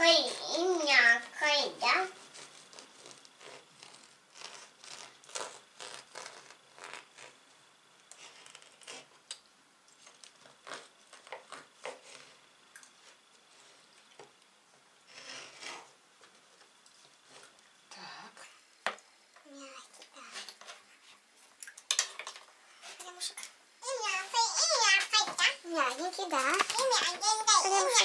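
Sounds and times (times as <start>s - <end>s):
knife sawing through bread: 2.1s - 7.4s, 15.1s - 15.9s.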